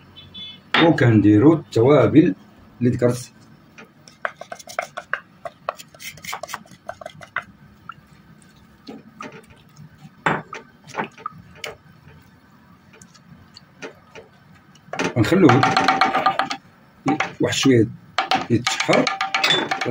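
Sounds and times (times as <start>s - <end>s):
wooden spoon scraping clay pot: 3.8s - 17.4s.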